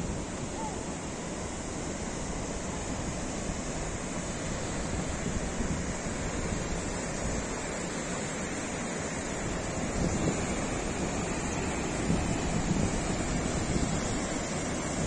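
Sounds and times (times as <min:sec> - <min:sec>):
river rushing over rocks: 0:00.0 - 0:15.0
wind buffeting microphone: 0:02.0 - 0:07.7, 0:09.3 - 0:15.0.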